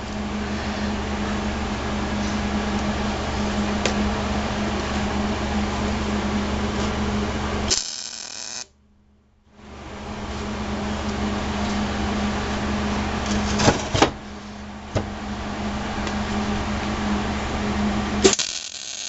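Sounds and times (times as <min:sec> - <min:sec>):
welding buzz: 0:00.0 - 0:08.8, 0:15.2 - 0:19.0
welding machine hum: 0:00.0 - 0:08.8, 0:09.6 - 0:19.0.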